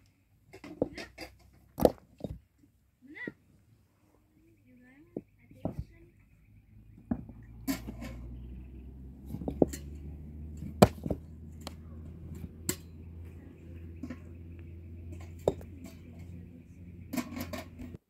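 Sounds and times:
low steady hum: 0.0 - 18.0
sharp knocks: 9.1 - 13.0.

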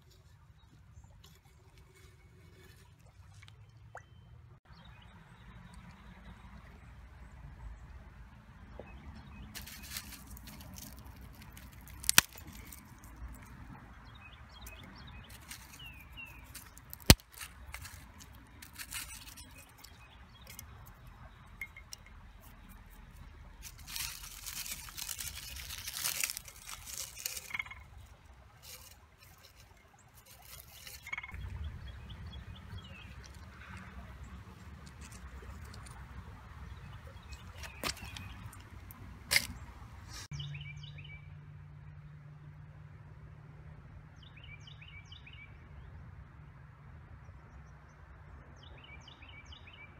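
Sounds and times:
dry leaves and soil rustling: 9.3 - 13.8, 14.5 - 40.3.

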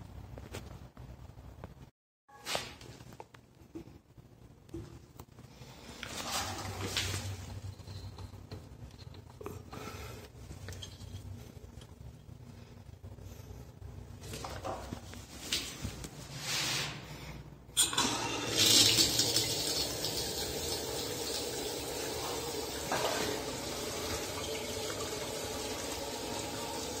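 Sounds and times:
tap water running into basin: 17.8 - 27.0.

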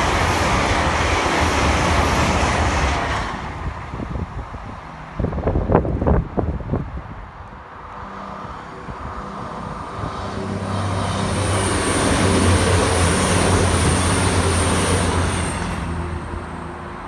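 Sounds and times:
diesel train engines humming: 0.0 - 17.0
wheels rushing on rail: 0.0 - 17.0
high whine: 7.8 - 17.0.

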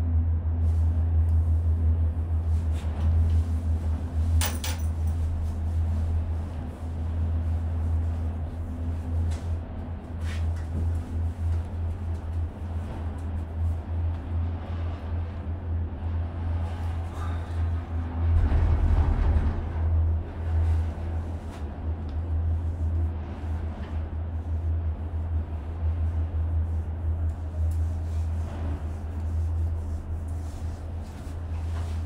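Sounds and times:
gondola cabin rumble and hiss: 0.0 - 32.0.

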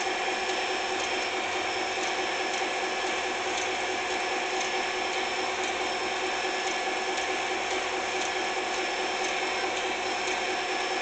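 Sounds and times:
toy train motor whirring: 0.0 - 11.0.

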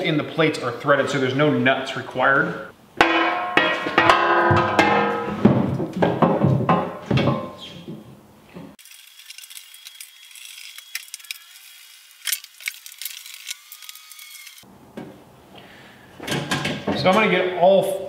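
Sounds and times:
metal panels knocking and ringing: 3.0 - 7.6.

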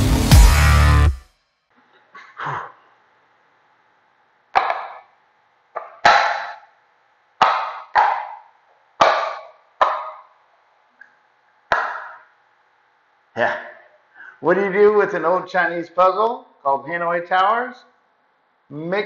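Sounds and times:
stacking pieces clacking on table: 4.6 - 5.2.

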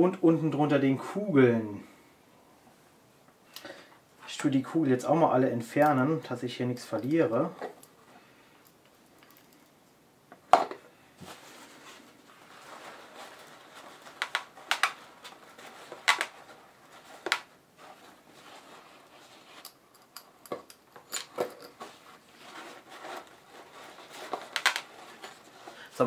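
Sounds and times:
paper towel rustling: 11.2 - 19.6.

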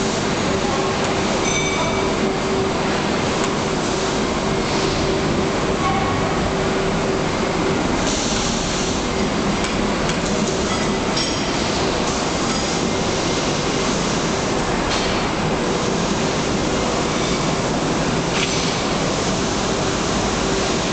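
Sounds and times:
machinery hum: 0.0 - 20.9.

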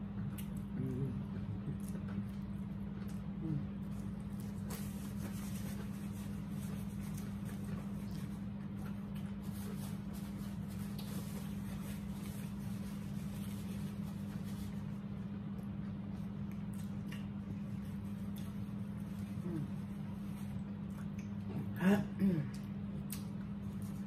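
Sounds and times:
small clicks of people eating: 0.0 - 9.9, 15.2 - 19.4, 20.5 - 21.5, 22.4 - 24.0
steady low hum: 0.0 - 24.0
rustling paper napkins: 3.8 - 8.5, 9.4 - 15.1.

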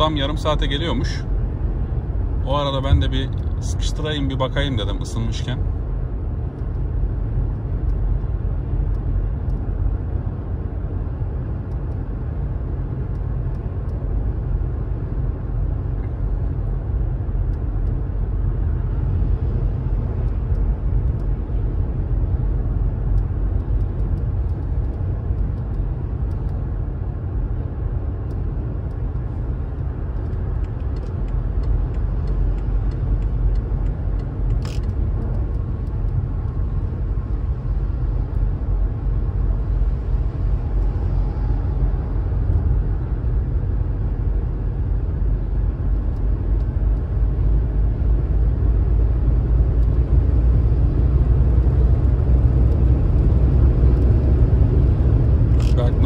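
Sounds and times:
car engine and road rumble: 0.0 - 56.0
sharp click: 30.2 - 36.6, 55.5 - 56.0.

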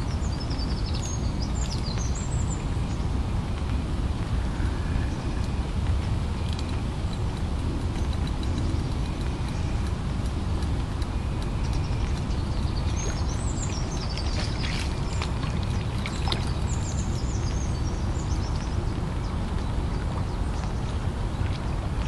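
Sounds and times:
low outdoor rumble: 0.0 - 22.0
small bird twittering: 11.4 - 18.7.

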